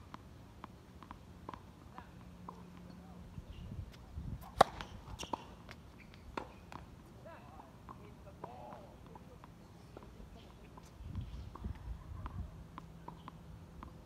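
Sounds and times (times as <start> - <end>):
tennis ball bouncing: 0.0 - 3.1, 4.4 - 7.0, 7.8 - 10.9, 11.5 - 14.0
racket striking ball: 4.4 - 5.6.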